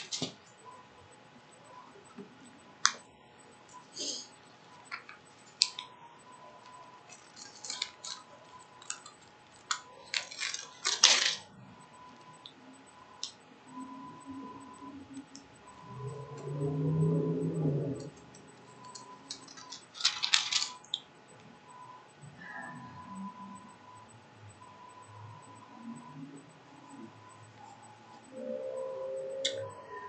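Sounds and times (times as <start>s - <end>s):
faint steady high tone: 0.0s - 21.0s, 21.7s - 30.0s
small objects clicking and tapping: 18.9s - 21.0s.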